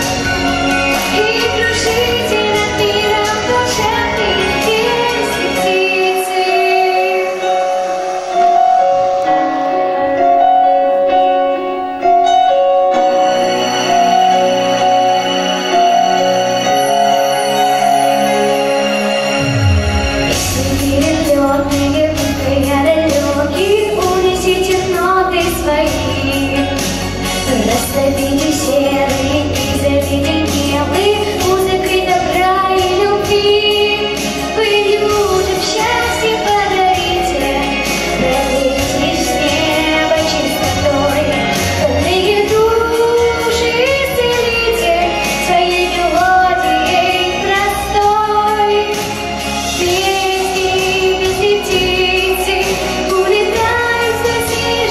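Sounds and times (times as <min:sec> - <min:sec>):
pop backing track with beat: 0:00.0 - 0:54.9
girl singing into microphone: 0:00.9 - 0:08.7, 0:20.4 - 0:26.8, 0:27.4 - 0:54.9.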